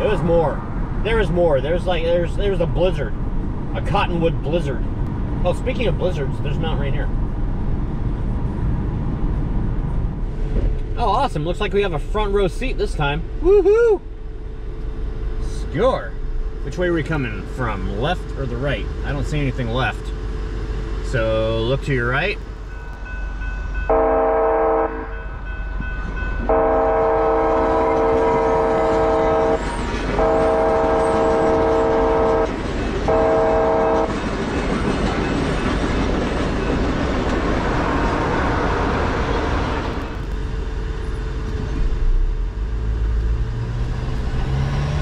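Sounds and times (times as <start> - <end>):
train rumbling and clattering past: 0.0 - 13.4, 14.1 - 45.0
car engine: 0.0 - 23.0, 35.8 - 45.0
train horn blasts: 23.8 - 25.3, 26.4 - 34.2.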